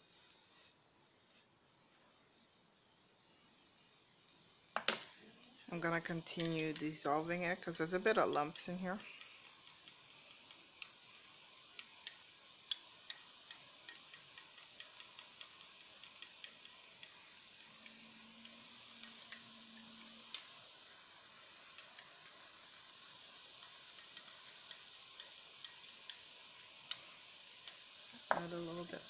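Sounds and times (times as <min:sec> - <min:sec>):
metal spoon clinking in glass bowl: 0:06.2 - 0:07.0, 0:11.8 - 0:20.6, 0:23.6 - 0:26.2.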